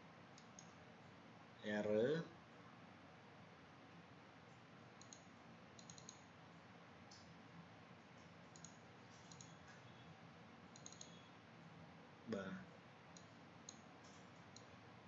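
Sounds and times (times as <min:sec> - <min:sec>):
low steady room hiss: 0:00.0 - 0:15.0
computer mouse clicks: 0:00.4 - 0:00.8, 0:05.0 - 0:06.3, 0:08.0 - 0:09.9, 0:10.7 - 0:11.3, 0:13.1 - 0:14.8.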